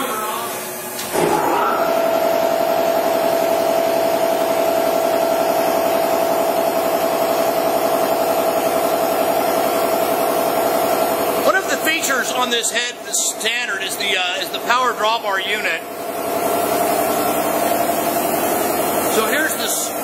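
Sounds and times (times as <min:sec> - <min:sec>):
air compressor pulsing: 0:00.0 - 0:20.0.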